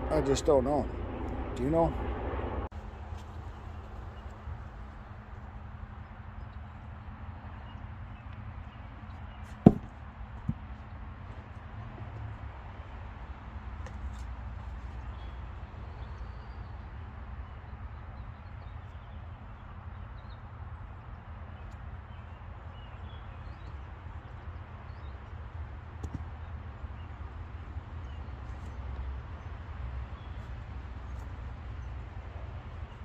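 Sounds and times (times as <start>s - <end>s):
low rumble: 0.0s - 3.0s
light knock: 9.7s - 9.9s.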